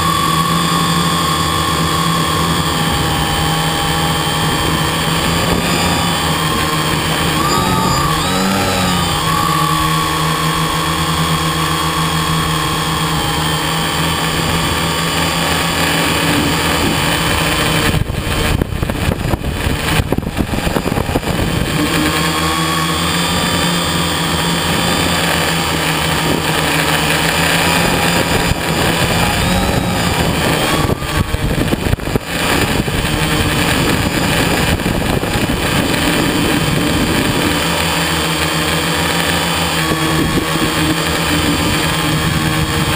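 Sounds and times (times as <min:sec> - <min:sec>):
model aircraft engine running: 0:00.0 - 0:42.9
wind rushing over microphone: 0:15.9 - 0:23.6, 0:25.7 - 0:37.8, 0:39.8 - 0:42.9.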